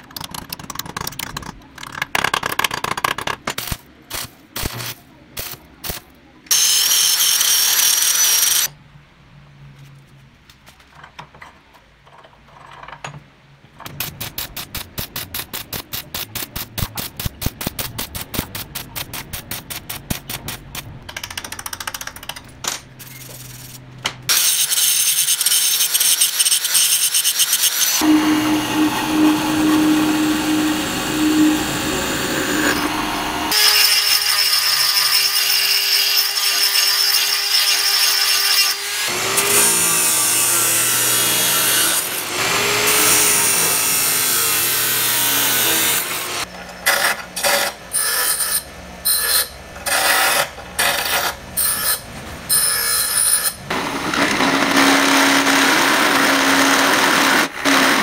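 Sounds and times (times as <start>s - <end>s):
rotary tool grinding metal: 6.5s - 8.7s, 23.0s - 53.7s.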